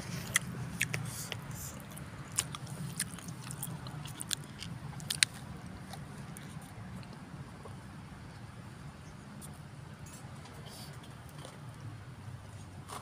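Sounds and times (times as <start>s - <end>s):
person chewing: 0.0s - 7.2s.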